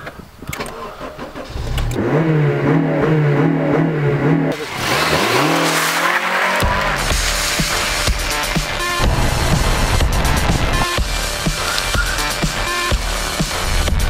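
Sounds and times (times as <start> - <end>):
car engine revving: 1.4 - 14.0
tyres screeching in a drift: 4.6 - 9.0, 11.5 - 12.9.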